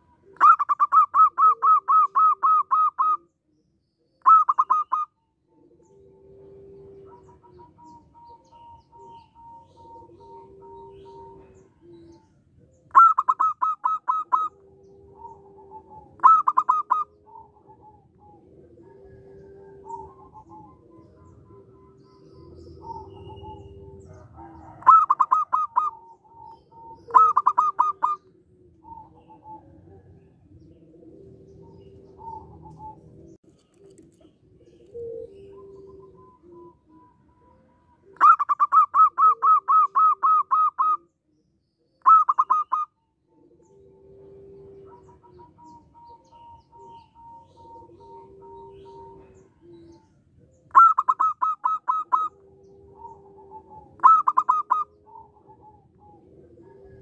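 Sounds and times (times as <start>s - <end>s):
dove staccato cooing: 0.0s - 41.2s, 41.9s - 57.0s
faint long cooing notes: 5.4s - 13.3s, 14.0s - 38.4s, 43.2s - 57.0s.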